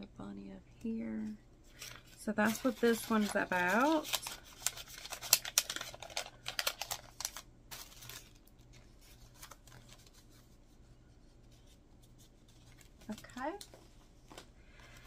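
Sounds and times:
packaging crinkling: 0:01.7 - 0:10.4.

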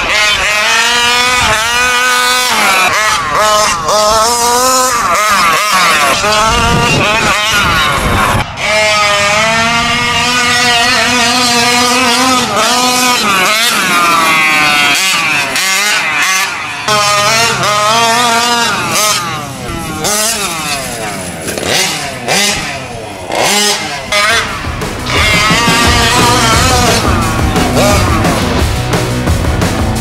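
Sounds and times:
two-stroke engine revving: 0:00.0 - 0:30.0.

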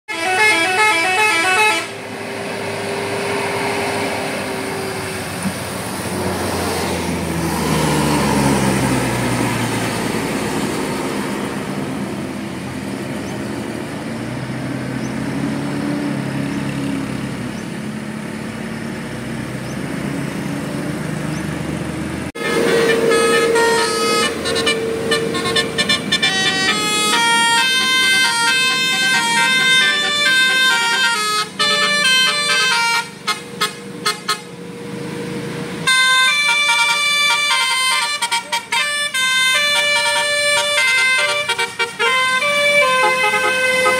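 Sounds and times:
multi-tone horn melody: 0:00.1 - 0:02.2, 0:22.4 - 0:34.6, 0:35.8 - 0:43.9
bus engine passing: 0:00.1 - 0:43.9.

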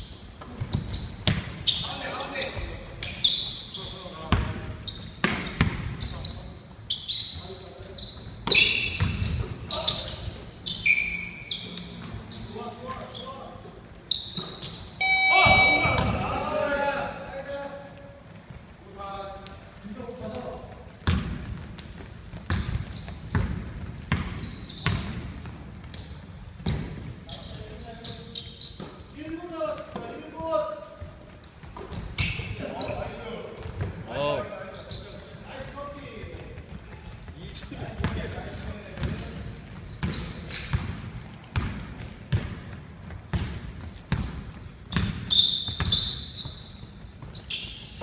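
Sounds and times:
sneaker squeaks on floor: 0:00.0 - 0:16.5, 0:19.3 - 0:35.4, 0:38.0 - 0:42.5, 0:43.3 - 0:48.0
basketball bouncing on wooden floor: 0:00.5 - 0:01.6, 0:21.0 - 0:27.0, 0:38.9 - 0:46.1.

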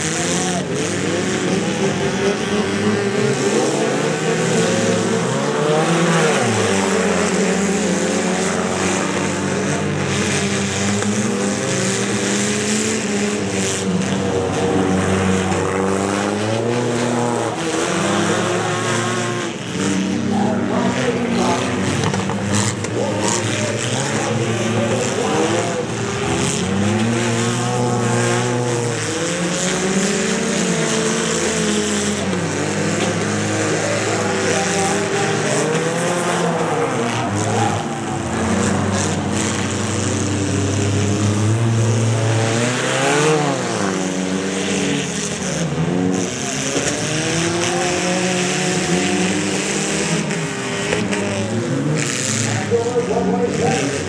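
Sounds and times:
small car engines revving: 0:00.0 - 0:54.0
cars crunching into each other: 0:21.2 - 0:43.9.

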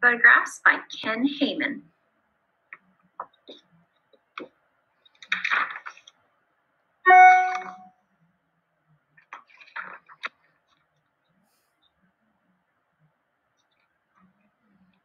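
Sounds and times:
loud pitched tone: 0:07.1 - 0:07.9
page rustling: 0:09.3 - 0:10.7.

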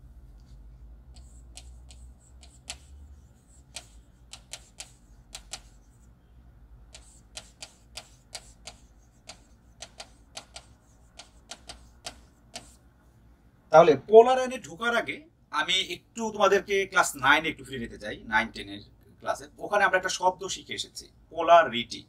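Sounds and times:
low steady hum: 0:00.0 - 0:22.0
stylus tapping on touchscreen: 0:01.2 - 0:06.0, 0:06.9 - 0:12.8.

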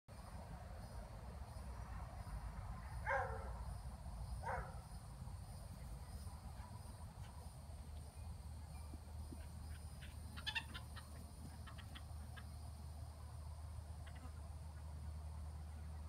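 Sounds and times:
crickets chirping: 0:00.1 - 0:16.0
dog barking: 0:03.0 - 0:03.6, 0:04.4 - 0:04.8.

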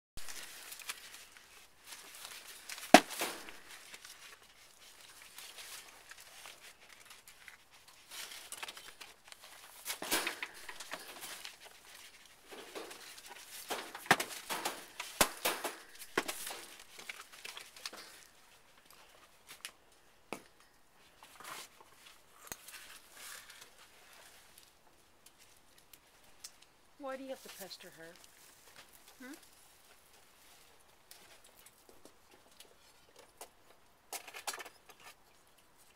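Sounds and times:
animals scuffling on plastic: 0:00.2 - 0:19.6, 0:27.0 - 0:33.1.

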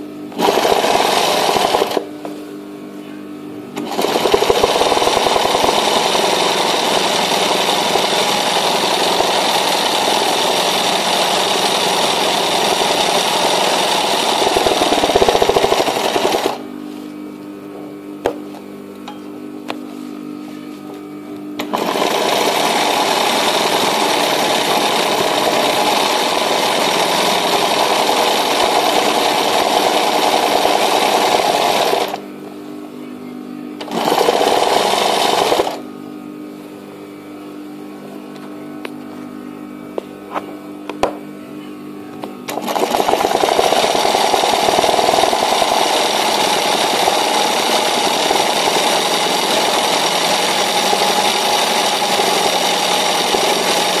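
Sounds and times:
steady motor hum: 0:00.0 - 0:54.0
sewing machine stitching: 0:00.3 - 0:02.1, 0:03.8 - 0:16.6, 0:21.6 - 0:32.2, 0:33.8 - 0:35.8, 0:42.5 - 0:54.0.

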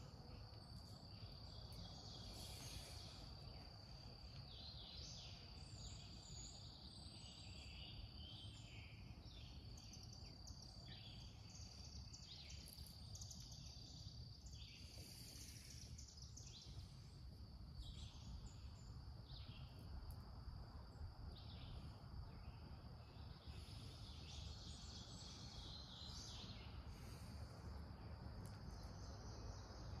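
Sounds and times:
bird chirps: 0:21.4 - 0:27.5.

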